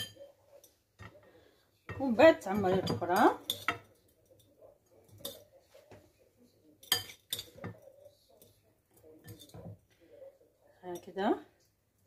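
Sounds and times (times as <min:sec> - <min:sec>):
spoon clinking against ceramic bowl: 0:00.0 - 0:01.2, 0:01.9 - 0:05.5, 0:06.8 - 0:09.6.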